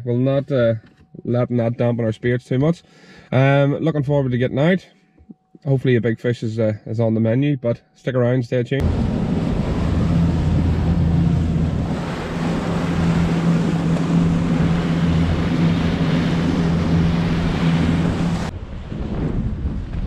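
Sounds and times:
outboard motor running: 8.8 - 18.5
water rushing past hull: 8.8 - 20.0
wind over microphone: 8.8 - 20.0.

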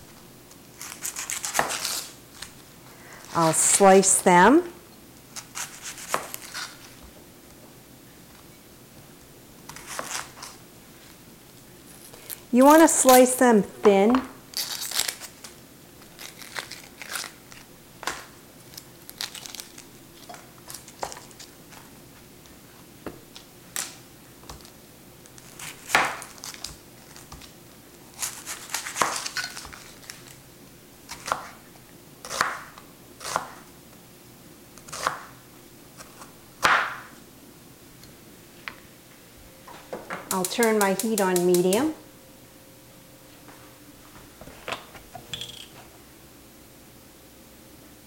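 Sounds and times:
knife slicing onion on board: 0.8 - 2.2, 5.4 - 7.0, 9.7 - 10.6, 25.6 - 27.5, 28.2 - 29.8, 31.1 - 31.6, 32.2 - 33.6, 34.8 - 35.3
onion skin crinkling and tearing: 0.8 - 2.7, 5.4 - 7.0, 11.9 - 13.3, 14.5 - 21.9, 24.6 - 30.4.

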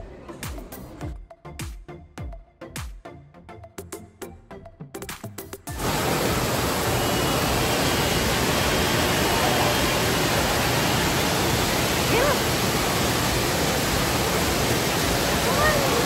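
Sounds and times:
music: 0.0 - 5.8
water rushing down slides: 5.8 - 16.0.

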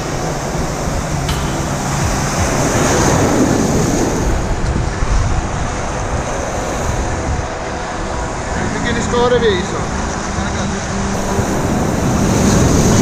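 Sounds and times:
wind on microphone: 0.0 - 8.6, 10.2 - 13.0
ocean surf breaking: 1.3 - 7.9, 11.2 - 13.0.

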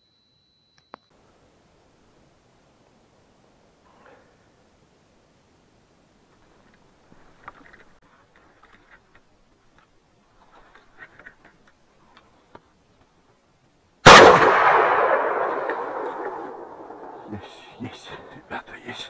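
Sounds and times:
rifle shot echoing: 14.0 - 17.3.

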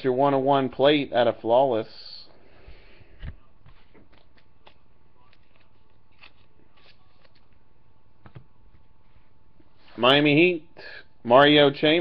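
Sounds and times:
trading cards clicking and rustling: 3.7 - 7.6.

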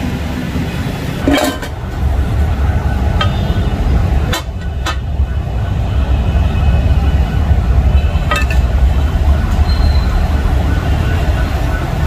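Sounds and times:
metal spatulas clanking on griddle: 1.3 - 1.7.

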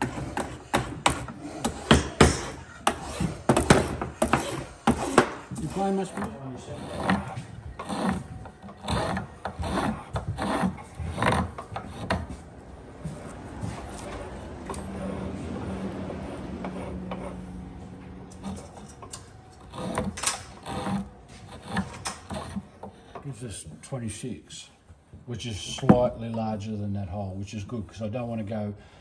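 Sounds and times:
spokeshave rasping wood: 0.0 - 23.3.

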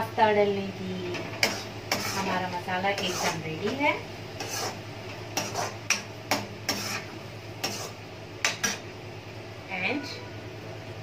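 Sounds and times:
metal spoon scraping metal pan: 1.4 - 3.5, 4.4 - 4.8, 5.4 - 8.8.

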